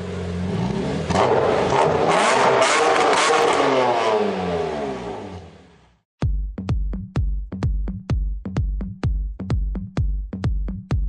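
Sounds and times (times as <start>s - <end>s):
car engine hum: 0.0s - 6.0s.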